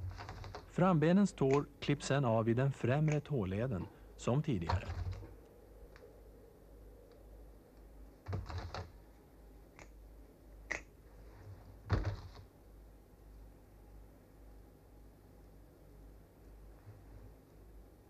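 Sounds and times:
faint low hum: 0:00.0 - 0:18.0
scissors snipping: 0:01.5 - 0:01.7.

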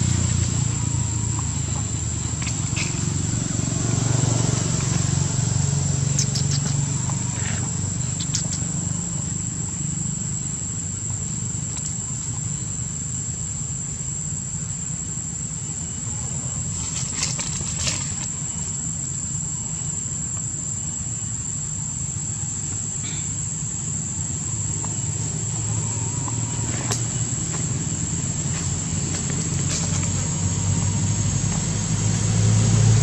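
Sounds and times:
insects droning: 0:00.0 - 0:33.0.

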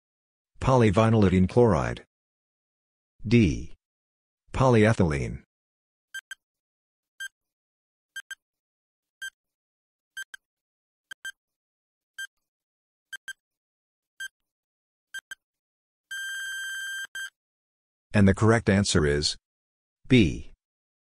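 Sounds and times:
high beeping timer ticks: 0:06.2 - 0:06.4, 0:08.2 - 0:08.4, 0:11.1 - 0:11.4, 0:13.1 - 0:13.4, 0:15.2 - 0:15.4
long steady beep: 0:16.1 - 0:17.3.

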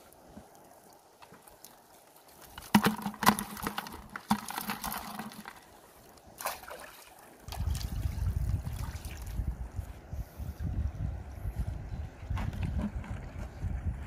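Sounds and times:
crab trap knocking and rattling: 0:02.6 - 0:05.6.

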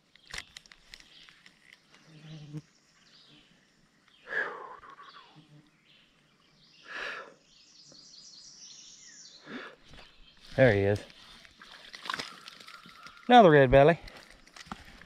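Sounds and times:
birds calling: 0:00.0 - 0:15.0
fly buzzing past: 0:02.0 - 0:02.8
bird trill: 0:11.2 - 0:13.4.

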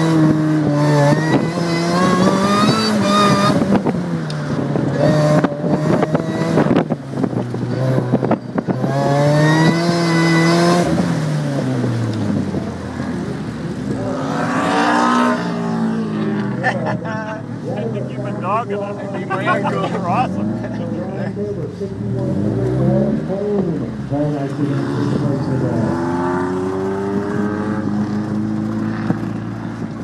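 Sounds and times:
car engine revving: 0:00.0 - 0:30.0
wind noise: 0:00.1 - 0:12.9.

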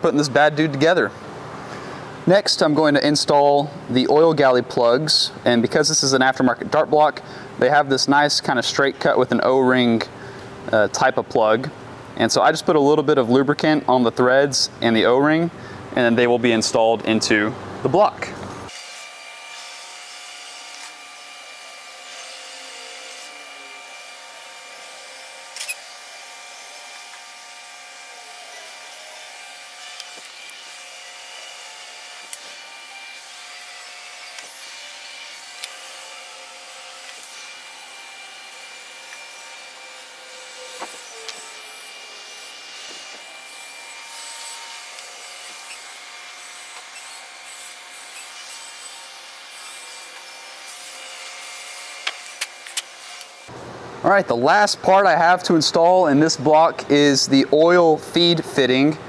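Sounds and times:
shop machinery humming: 0:17.0 - 0:55.1.

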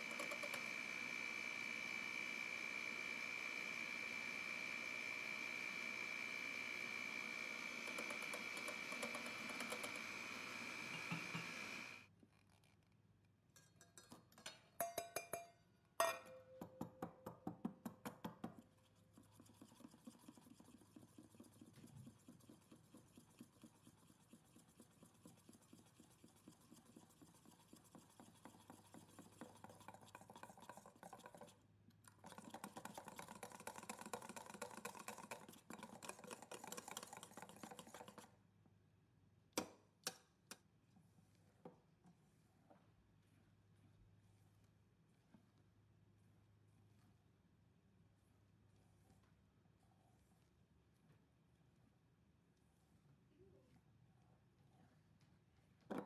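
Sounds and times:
whisk ticking against metal bowl: 0:07.7 - 0:10.2, 0:18.0 - 0:31.5, 0:32.1 - 0:38.3
sieve tapping with metal ring: 0:13.6 - 0:17.1
flour sifted through sieve: 0:18.6 - 0:38.4, 0:40.8 - 0:54.0.

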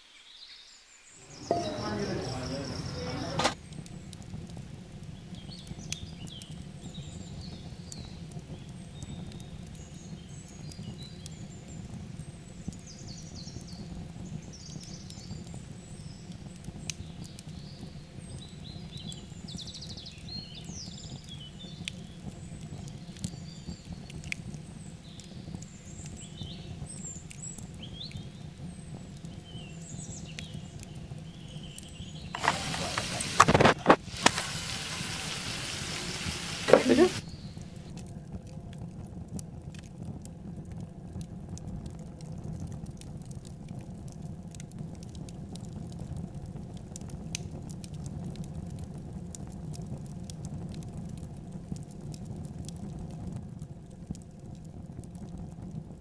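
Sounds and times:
chicken sizzling in a frying pan: 0:01.1 - 0:42.6
faint high chirps: 0:01.2 - 0:03.6
low steady background hum: 0:01.2 - 0:03.6.

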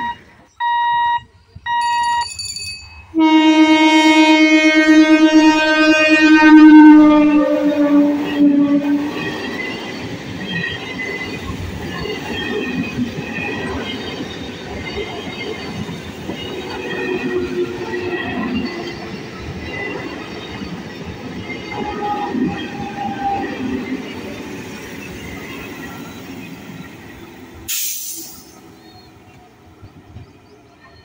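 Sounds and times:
train horn: 0:03.2 - 0:09.3, 0:21.8 - 0:23.6
train wheels rumbling on rails: 0:05.2 - 0:31.0.

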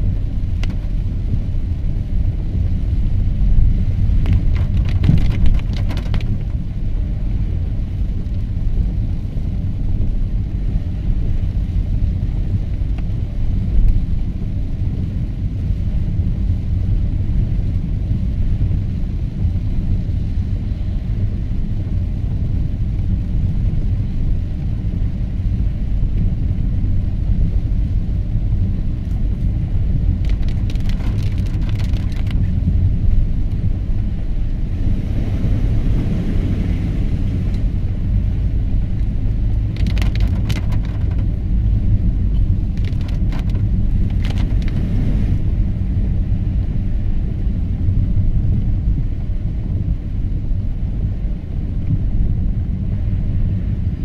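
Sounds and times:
car engine and road noise: 0:00.0 - 0:54.0
crackling bursts: 0:30.1 - 0:32.5, 0:39.5 - 0:41.4, 0:42.4 - 0:44.8.

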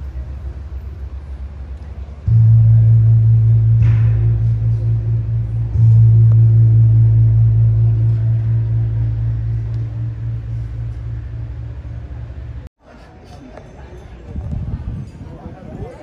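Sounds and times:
large gong ringing: 0:00.0 - 0:12.7.

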